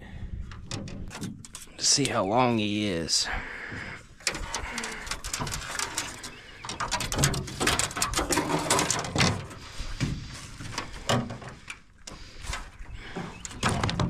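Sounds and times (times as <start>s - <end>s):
gear rattling on metal boat floor: 4.2s - 11.6s.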